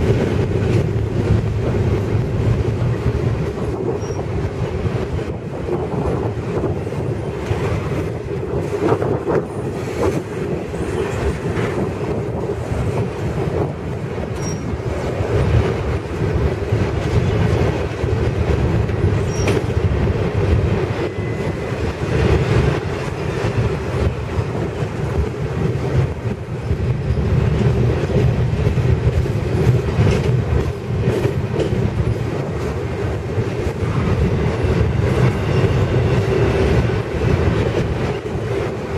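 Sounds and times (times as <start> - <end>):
freight train wheels rumbling on rail: 0.0 - 38.9.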